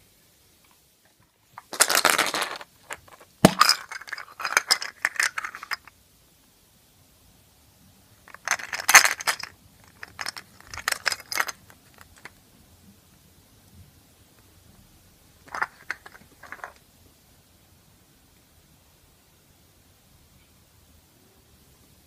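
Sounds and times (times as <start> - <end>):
plastic capsule clicking and rattling: 1.6 - 5.9, 8.3 - 12.4, 15.5 - 16.8.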